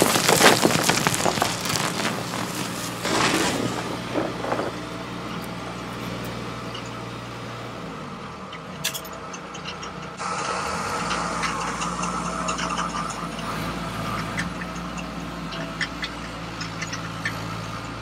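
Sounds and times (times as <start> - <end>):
pebbles rattling against metal: 0.0 - 5.9
small electric motors humming: 10.1 - 15.5.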